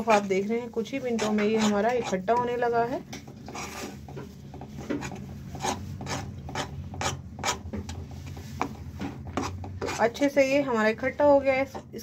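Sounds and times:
spatula scraping paste in pan: 0.0 - 10.6.

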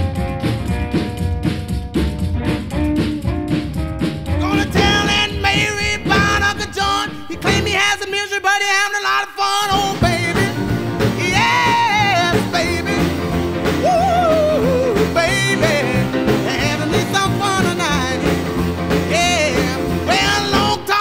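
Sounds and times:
song with singing over a band: 4.4 - 21.0.

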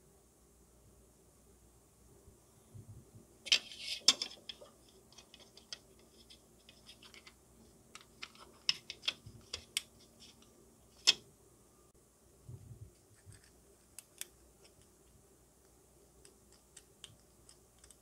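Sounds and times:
plastic model parts clicking: 16.2 - 18.0.

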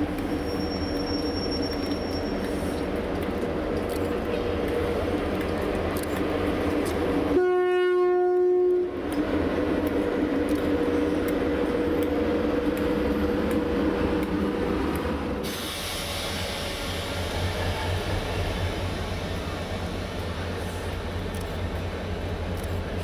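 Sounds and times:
locomotive horn blast: 7.3 - 9.0.

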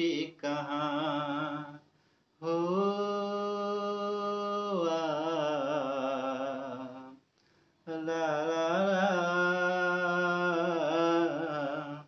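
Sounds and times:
man singing unaccompanied: 0.0 - 7.2, 7.8 - 12.0
man breathing in: 1.9 - 2.4, 7.4 - 7.8.

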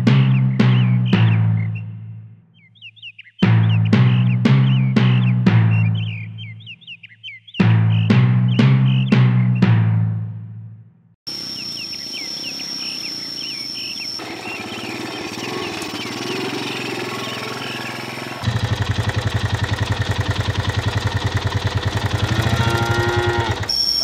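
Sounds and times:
bird chirps: 0.0 - 9.7, 11.3 - 18.8, 21.9 - 24.0
steady high whine: 11.3 - 18.6
motorcycle engine running: 14.2 - 24.0.

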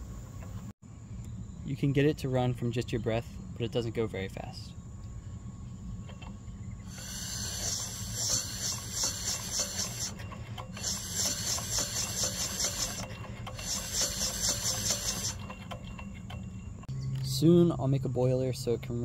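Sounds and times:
vacuum engine hissing puffs: 6.8 - 15.4.

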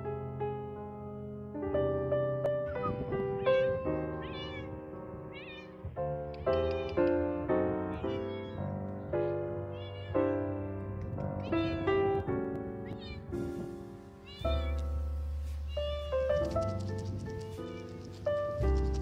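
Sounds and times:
background piano music: 0.0 - 19.0
cat meowing: 3.5 - 5.9, 9.7 - 10.4, 14.2 - 14.9, 15.7 - 16.2.

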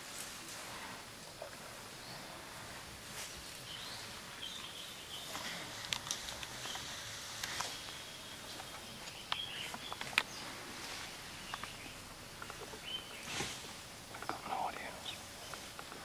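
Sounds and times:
birds chirping faintly: 0.2 - 16.0
sharp clicks and snaps: 5.8 - 7.7.

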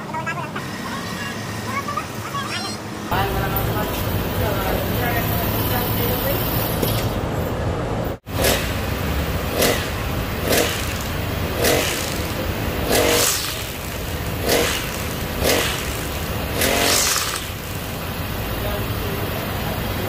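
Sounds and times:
brush cutter engine revving: 8.3 - 19.6.

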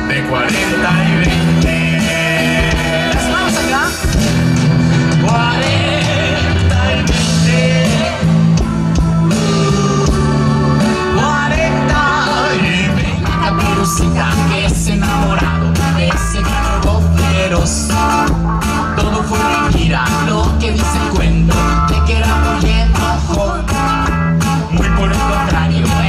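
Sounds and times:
person singing: 0.0 - 4.4, 5.0 - 26.0
drums: 0.0 - 26.0
electric guitars: 0.0 - 26.0.

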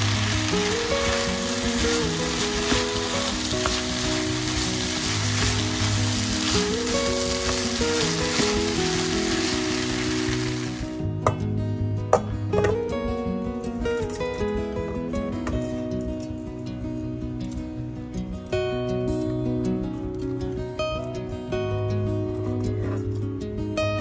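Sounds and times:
spatula stirring and scraping: 0.0 - 10.8
rice sizzling in frying pan: 0.0 - 11.0.

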